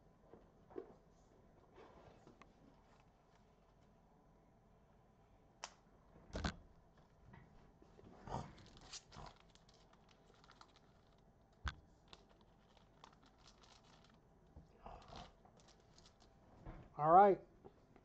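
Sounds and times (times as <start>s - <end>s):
trading cards rustling: 8.6s - 11.2s, 12.0s - 14.2s.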